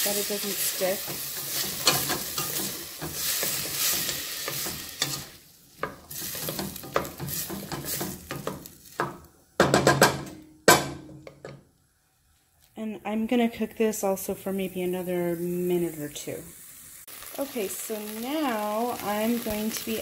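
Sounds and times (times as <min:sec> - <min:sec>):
frying sizzle: 0:00.0 - 0:10.2, 0:13.0 - 0:20.0
wooden spoon scraping a pot: 0:00.6 - 0:09.1.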